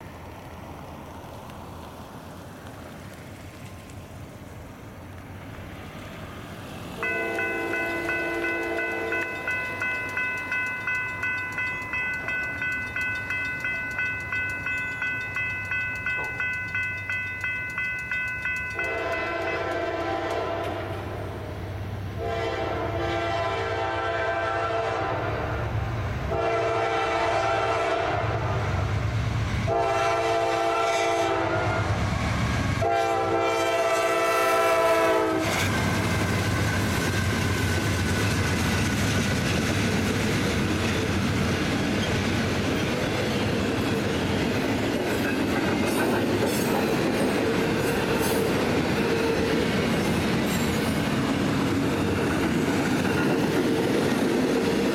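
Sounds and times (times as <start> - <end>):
train horn blasts: 7.0 - 9.6, 18.8 - 21.2, 22.2 - 25.6, 26.3 - 28.6, 29.7 - 32.0, 32.8 - 35.6
railroad crossing bell ringing: 7.0 - 21.0, 40.0 - 54.9.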